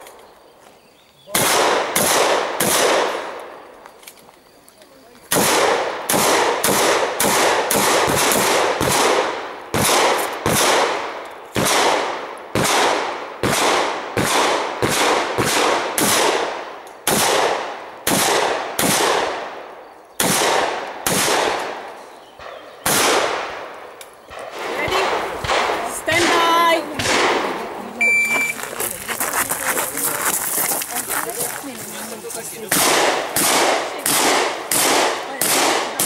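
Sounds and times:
shotgun shots echoing: 1.3 - 3.6, 5.3 - 27.8, 32.6 - 36.0.

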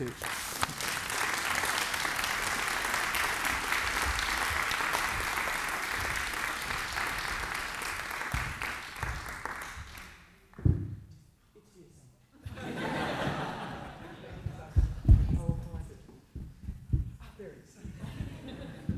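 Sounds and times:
audience applauding: 0.0 - 10.2
loud thump: 10.6 - 11.1.

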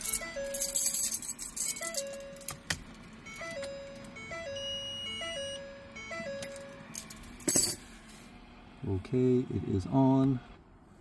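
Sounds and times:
dashboard warning chime: 0.0 - 7.7.

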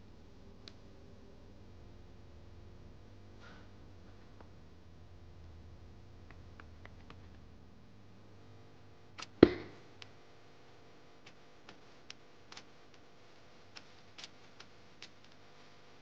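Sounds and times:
faint clicks of dough: 11.2 - 15.9.

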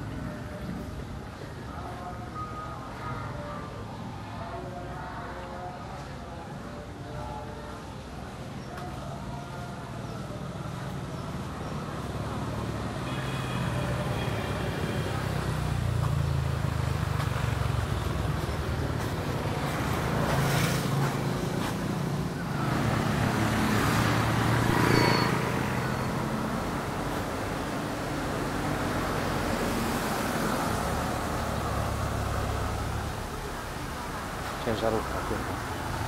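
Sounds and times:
vehicles driving past: 10.2 - 36.0.

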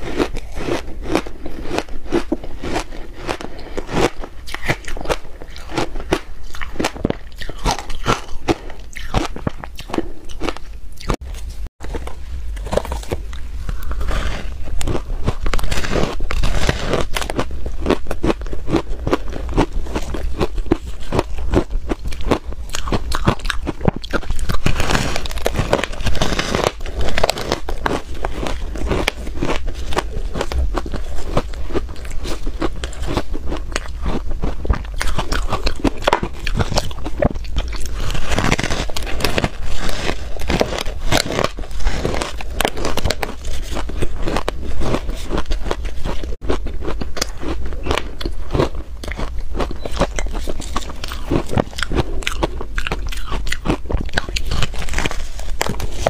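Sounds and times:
crunching ice: 0.0 - 11.2, 12.6 - 56.0.

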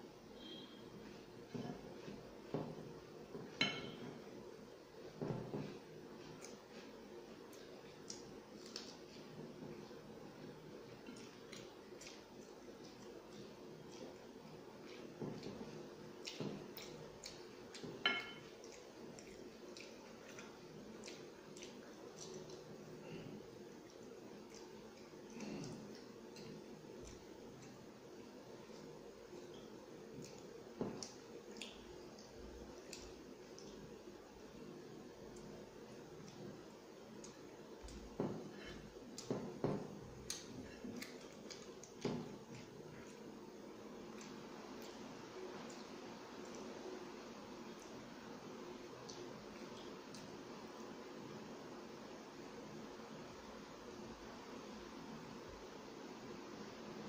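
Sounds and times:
glass plate clinking: 3.6 - 4.1, 18.1 - 18.5
chewing: 5.5 - 50.9
fingers tapping glass plate: 17.7 - 18.8.

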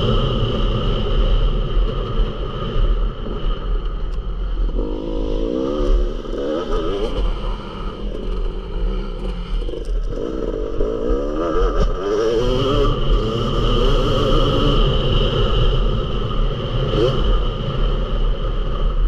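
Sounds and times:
motocross bike engine revving: 4.5 - 18.9.

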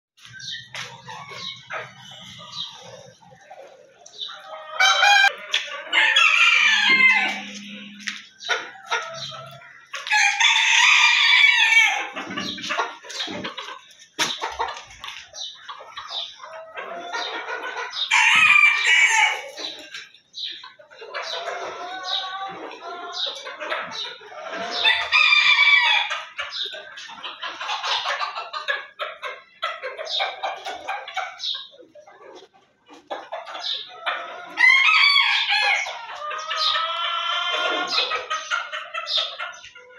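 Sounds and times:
chickens clucking: 0.2 - 39.9
rooster crowing: 4.6 - 7.9, 10.0 - 12.1, 24.8 - 26.1, 34.6 - 35.9.

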